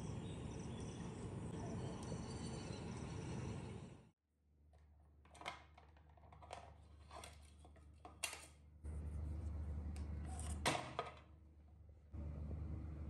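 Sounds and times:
steady low hum: 8.8s - 10.6s, 11.4s - 13.0s.

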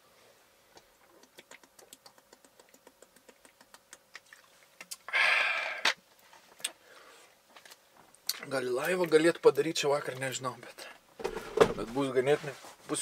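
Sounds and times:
loud exhale: 5.1s - 6.0s.

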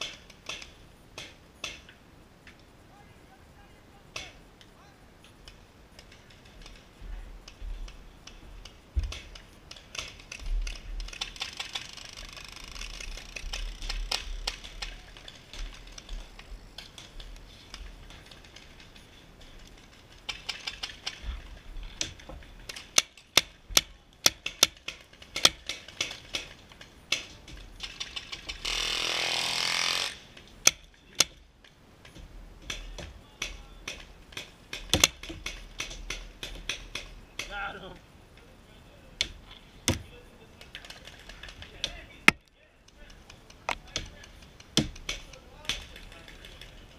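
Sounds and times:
paintball markers firing: 32.6s - 37.6s.

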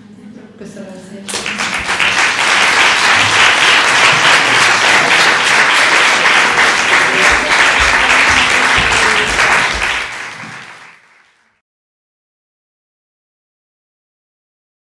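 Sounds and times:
audience applauding: 1.3s - 11.6s.

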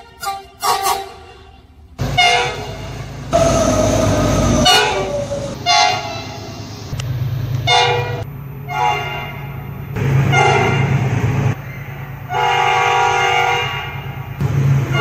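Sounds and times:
locomotive horn blasts: 0.0s - 6.6s, 7.6s - 9.6s, 10.2s - 11.1s, 12.3s - 14.2s
locomotive low rumble: 0.0s - 15.0s.

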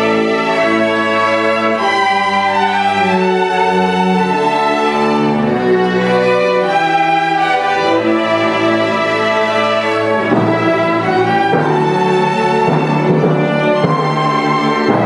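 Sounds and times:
orchestra bowed strings: 0.0s - 15.0s.

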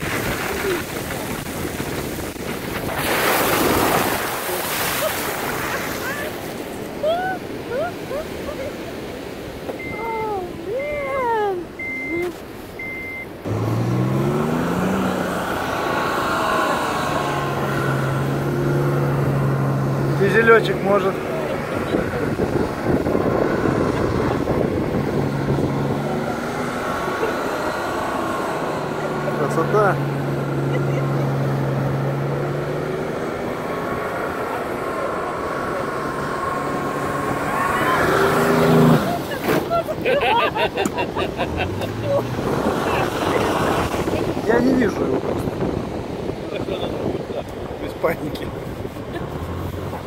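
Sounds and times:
wheels spinning in sand: 0.0s - 6.0s
short electronic beeps: 9.8s - 10.1s, 11.8s - 13.4s
diesel engine revving: 12.8s - 50.0s.

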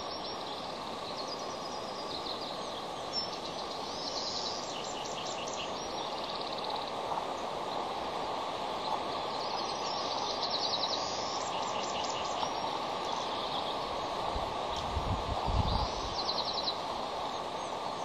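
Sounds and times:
outdoor background rush: 0.0s - 18.0s.

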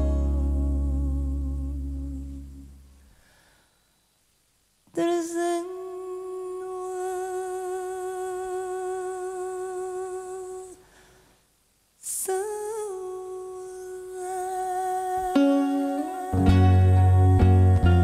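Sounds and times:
woman singing long notes: 0.0s - 2.8s, 4.9s - 10.9s, 12.0s - 18.0s
sharp breath: 3.0s - 4.2s, 10.8s - 11.5s.

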